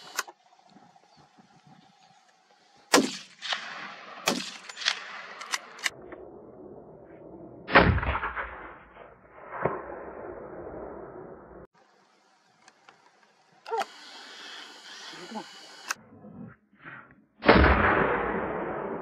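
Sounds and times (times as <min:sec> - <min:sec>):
gunshots echoing: 0:02.9 - 0:05.9, 0:07.7 - 0:10.3, 0:17.4 - 0:19.0.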